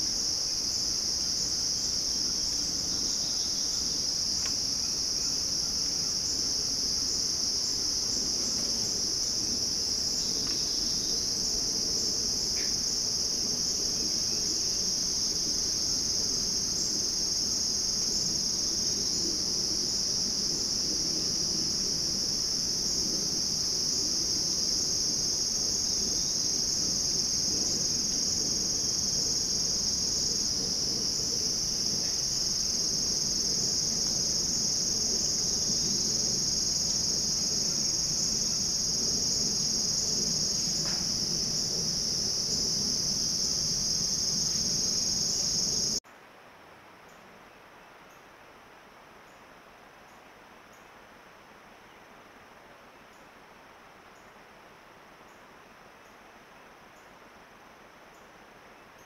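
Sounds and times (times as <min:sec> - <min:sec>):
insects trilling: 0:00.0 - 0:46.0.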